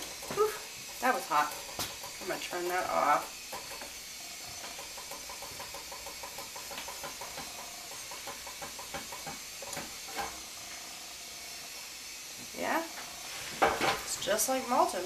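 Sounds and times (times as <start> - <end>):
whisk clicking in metal saucepan: 0.0 - 4.0, 4.6 - 10.4
steady hiss: 0.0 - 15.0.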